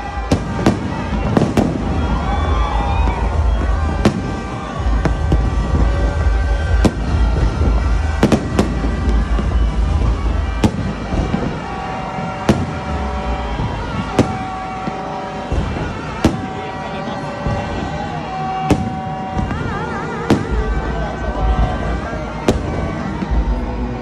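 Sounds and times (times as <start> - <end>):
fireworks bangs: 0.0 - 24.0.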